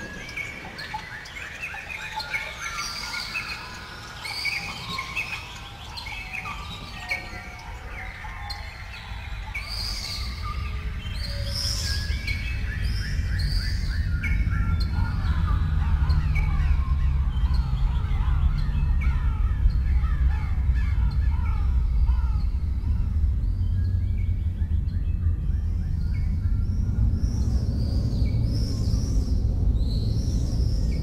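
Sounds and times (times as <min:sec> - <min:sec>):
chorus of birds calling: 0:00.0 - 0:31.0
deep rumble: 0:10.4 - 0:31.0.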